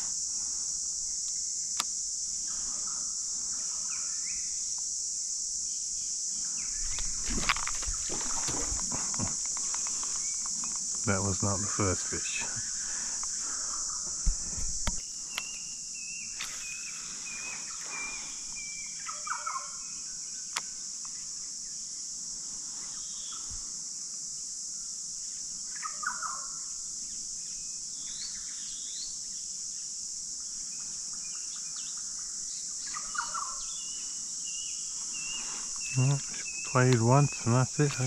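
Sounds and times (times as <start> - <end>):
insects droning: 0.0 - 38.0
birds chirping: 6.4 - 19.7, 32.8 - 38.0.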